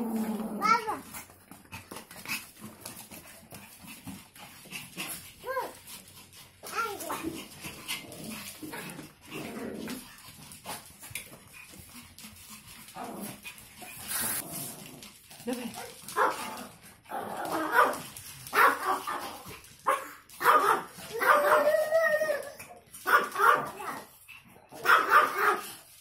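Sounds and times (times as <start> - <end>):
small dogs barking: 16.2 - 16.6, 17.4 - 21.8, 23.0 - 24.1, 24.7 - 25.8.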